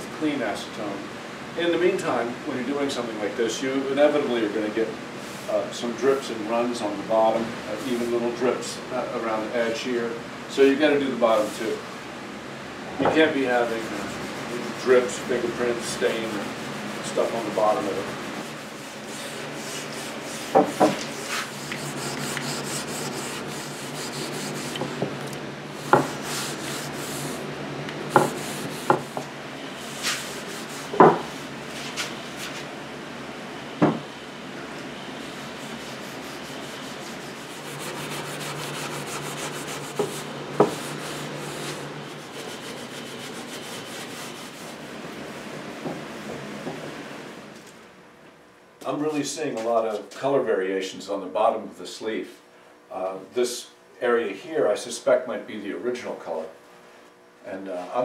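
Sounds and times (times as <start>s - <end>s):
rag rubbing on wood: 13.2s - 25.0s, 25.8s - 27.5s, 28.1s - 32.7s, 35.2s - 44.9s.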